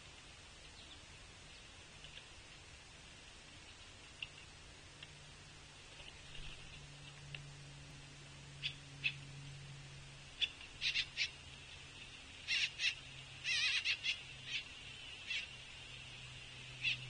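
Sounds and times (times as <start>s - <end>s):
woodpecker begging calls: 8.6s - 9.3s, 10.4s - 11.4s, 12.4s - 15.6s, 16.8s - 17.0s.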